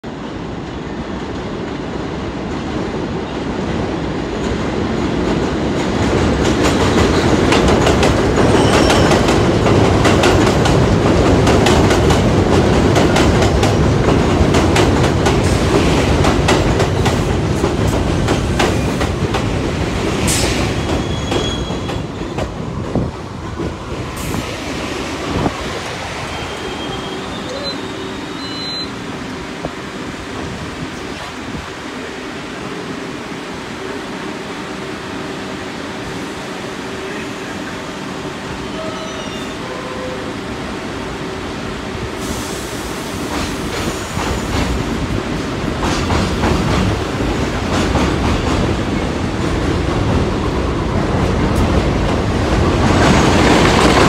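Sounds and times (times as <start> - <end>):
train rumbling into station: 0.0 - 54.0
brakes squealing: 26.3 - 29.0.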